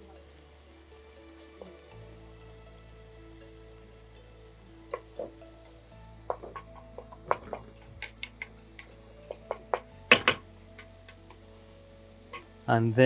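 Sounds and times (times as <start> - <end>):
wooden spatula knocking frying pan: 4.9 - 5.4, 6.2 - 11.4.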